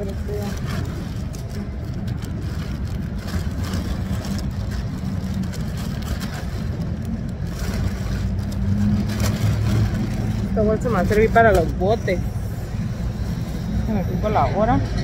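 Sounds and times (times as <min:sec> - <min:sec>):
plastic bag rustling: 0:00.0 - 0:14.0.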